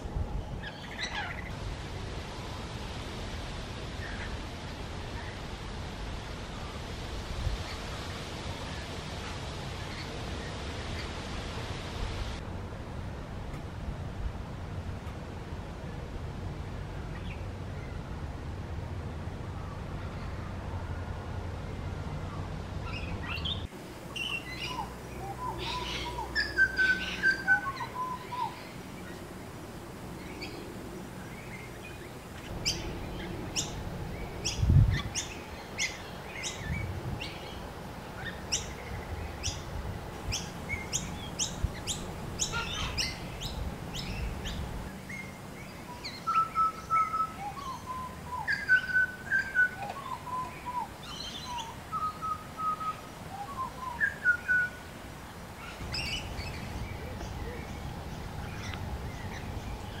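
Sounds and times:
bird singing: 22.2s - 29.4s, 30.1s - 54.8s.

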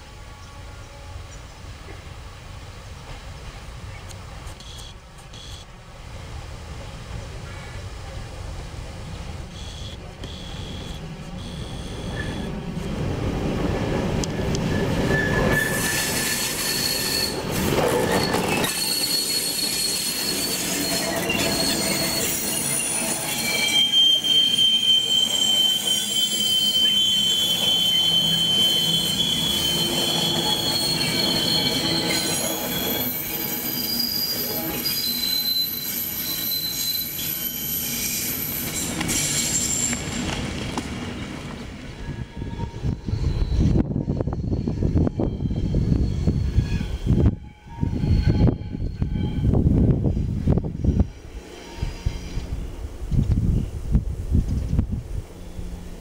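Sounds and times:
train rolling past: 0.0s - 56.0s
train wheels squealing on rails: 9.5s - 12.6s, 14.2s - 53.8s, 55.3s - 56.0s.

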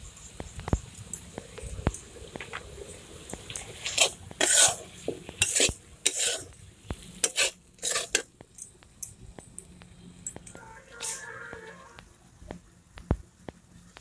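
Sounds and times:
food sizzling: 0.2s - 8.9s, 10.6s - 12.2s
spatula scraping metal pan: 3.5s - 8.3s, 10.6s - 12.0s.

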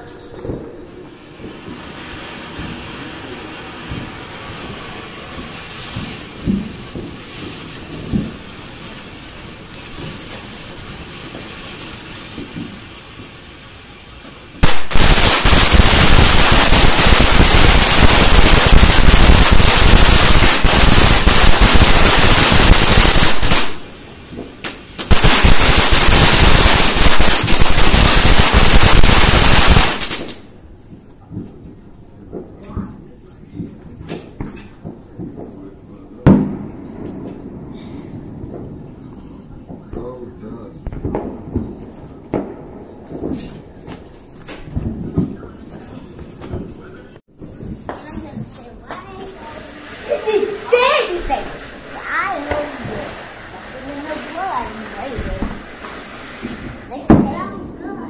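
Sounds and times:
loud rapid firework crackling: 0.0s - 33.2s, 34.0s - 58.0s
spark fountain hissing: 1.1s - 30.6s, 47.5s - 57.1s.

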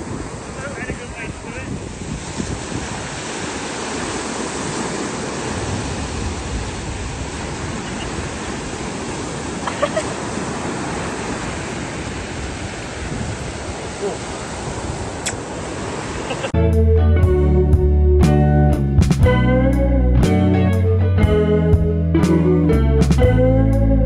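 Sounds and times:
waves breaking on beach: 0.0s - 16.6s.

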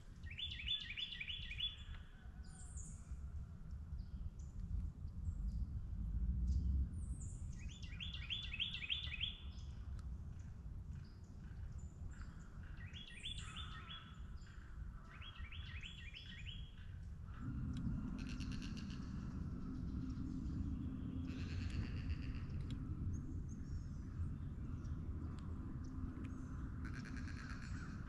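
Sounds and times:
songbirds singing: 0.0s - 5.8s, 6.5s - 28.0s
steady low rumble: 2.6s - 28.0s
low hum: 15.8s - 28.0s.

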